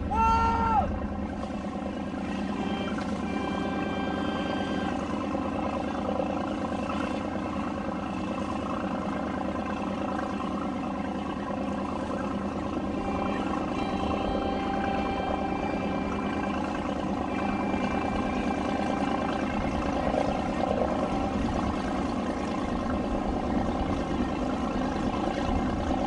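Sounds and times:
boat motors running: 0.0 - 26.0
wailing siren-like tone: 2.2 - 6.6, 12.0 - 22.7.

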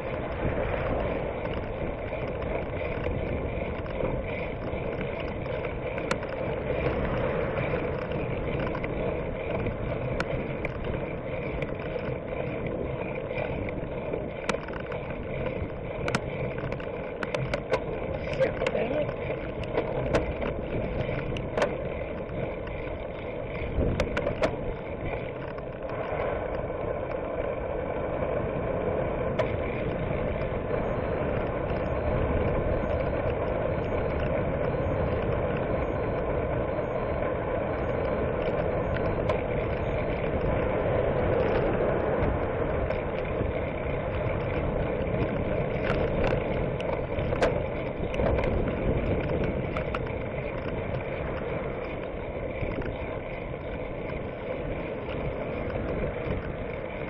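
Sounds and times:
motor traffic passing: 0.0 - 57.0
wind and road noise: 0.0 - 57.0.

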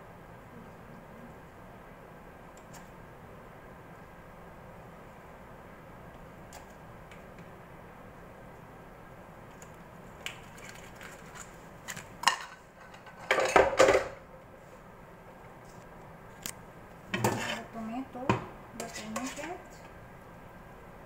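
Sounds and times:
metal utensils clattering on tray: 12.2 - 14.2.

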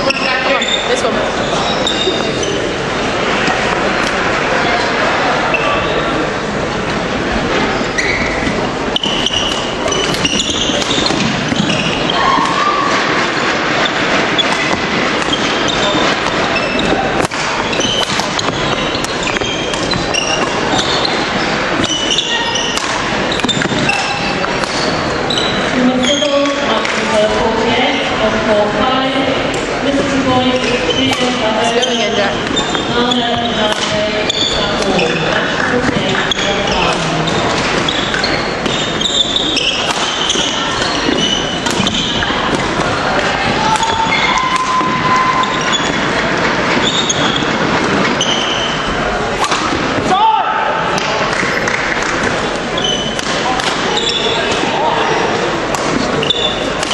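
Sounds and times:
shoes squeaking on floor: 0.0 - 6.2, 6.9 - 49.0, 51.6 - 56.9
crowd chatter echoing: 0.0 - 56.9
murmur of spectators: 0.0 - 56.9
racket striking shuttlecock: 9.0 - 21.2, 21.8 - 25.0, 31.0 - 34.0, 39.6 - 46.0, 49.4 - 50.1, 51.0 - 54.6, 55.7 - 56.9.

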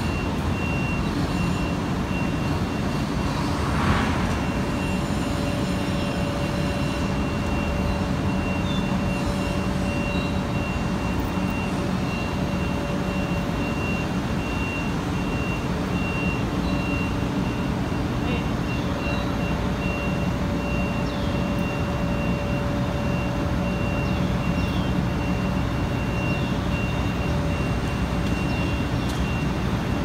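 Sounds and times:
high warning beep: 0.0 - 3.4, 4.4 - 30.0
crane diesel engine running: 0.0 - 30.0.

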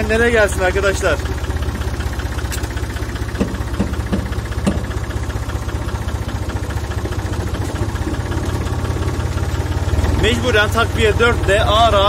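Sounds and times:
tractor diesel engine chugging: 0.0 - 12.0
sharp clunks: 2.5 - 5.0.

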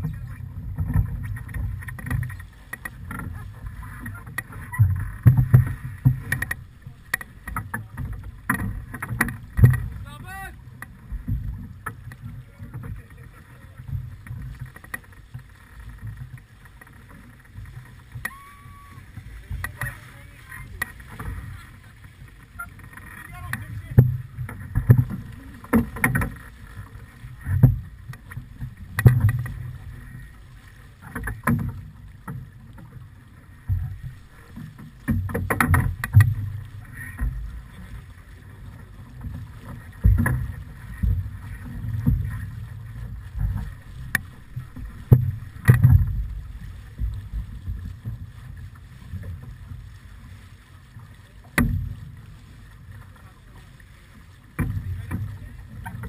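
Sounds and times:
water rushing past hull: 0.0 - 56.0.

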